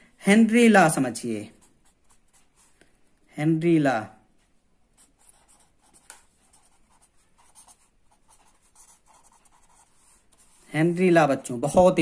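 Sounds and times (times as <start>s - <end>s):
marker scratching on paper: 1.2s - 2.9s, 4.9s - 11.6s.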